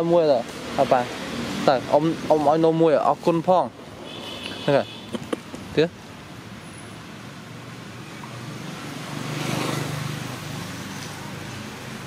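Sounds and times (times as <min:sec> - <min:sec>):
vehicle passing by: 0:00.5 - 0:03.4, 0:07.5 - 0:12.0.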